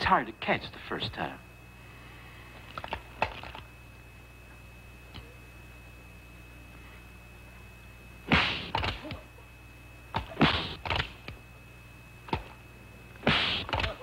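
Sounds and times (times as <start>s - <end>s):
faint soundtrack hum: 0.0s - 14.0s
quick slaps and whacks: 8.3s - 9.1s, 10.1s - 11.2s, 13.2s - 14.0s.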